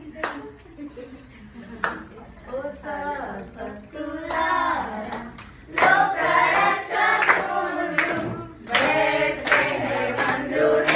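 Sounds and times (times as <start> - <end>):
group singing a carol: 3.0 - 10.9
hand claps: 5.1 - 10.9.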